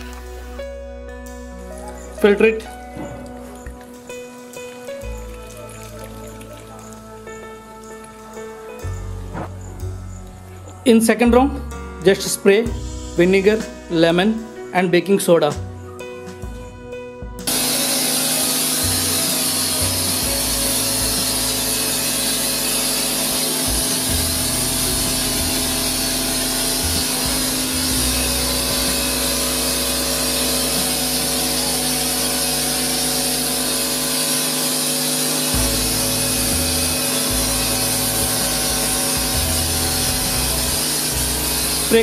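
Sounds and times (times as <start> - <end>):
pressure washer motor droning: 0.0 - 9.9, 17.4 - 42.0
nozzle spray hissing: 17.5 - 42.0.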